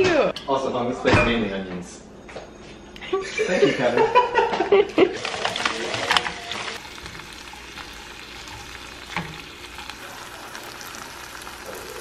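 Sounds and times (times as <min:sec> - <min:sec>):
tongs clacking: 0:05.2 - 0:12.0
vegetables sizzling in a frying pan: 0:05.2 - 0:12.0.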